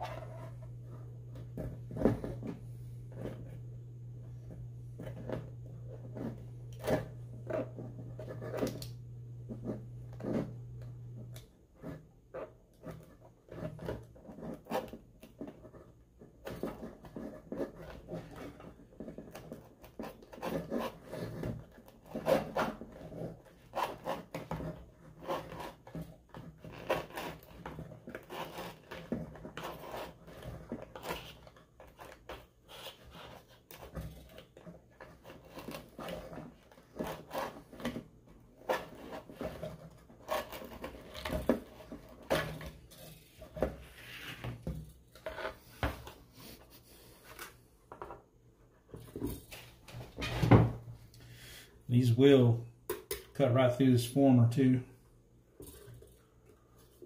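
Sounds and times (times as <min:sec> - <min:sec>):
rubber scraping and peeling: 0:11.3 - 0:47.6.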